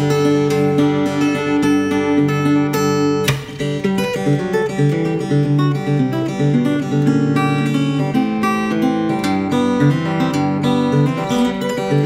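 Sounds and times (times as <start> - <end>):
fingerstyle acoustic guitar: 0.0 - 12.0.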